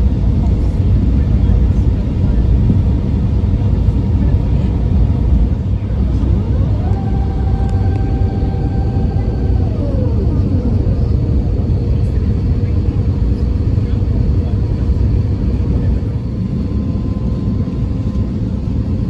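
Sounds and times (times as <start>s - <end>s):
aircraft cabin engine rumble: 0.0s - 19.0s
thin whine: 5.8s - 12.8s.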